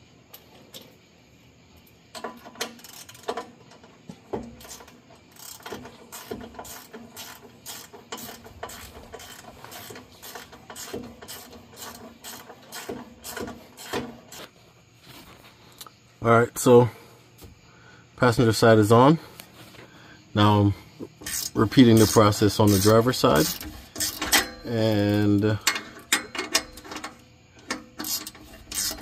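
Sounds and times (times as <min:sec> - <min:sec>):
hand ratchet clicking: 0:02.2 - 0:14.5, 0:21.2 - 0:29.0.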